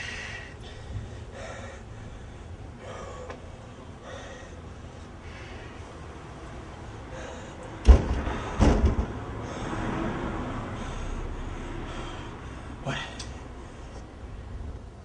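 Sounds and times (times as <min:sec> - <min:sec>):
loud bangs: 0:07.8 - 0:09.4.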